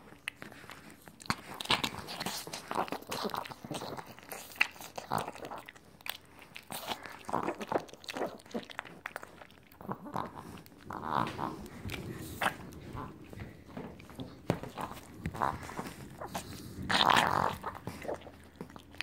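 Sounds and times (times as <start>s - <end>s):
dog chewing and smacking: 0.0s - 19.0s.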